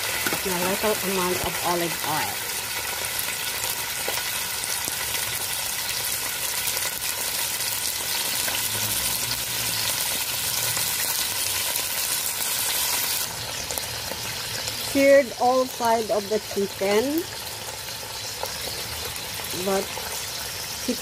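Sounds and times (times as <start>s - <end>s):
chicken sizzling in hot oil: 0.0s - 21.0s.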